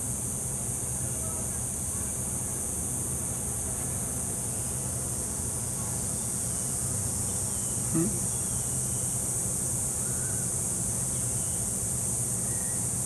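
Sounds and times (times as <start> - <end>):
high-pitched insect chorus: 4.5 - 13.0.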